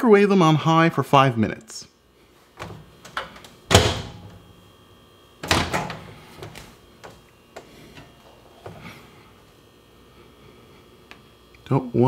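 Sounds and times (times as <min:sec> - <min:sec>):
microwave oven door thunk: 0:02.6 - 0:04.4, 0:05.4 - 0:06.6.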